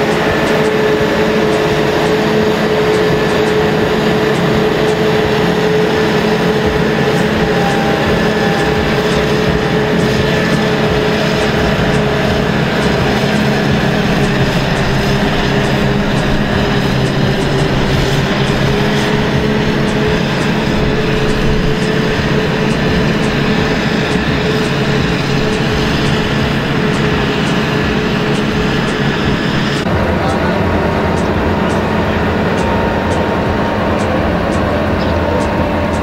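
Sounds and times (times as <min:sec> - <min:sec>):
constant whining hum: 0:00.0 - 0:36.0
forage harvester engine drone: 0:00.0 - 0:36.0.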